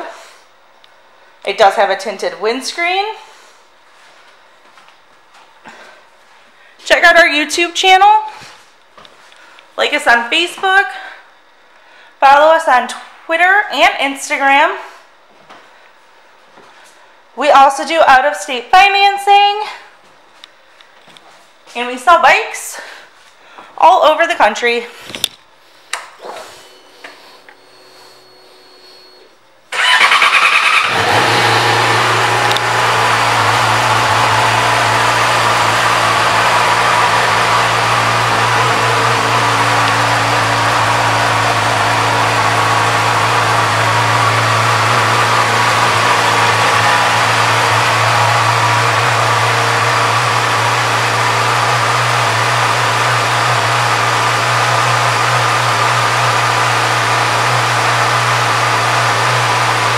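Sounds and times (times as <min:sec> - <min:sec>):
motorcycle engine starting and idling: 0:29.7 - 0:59.9.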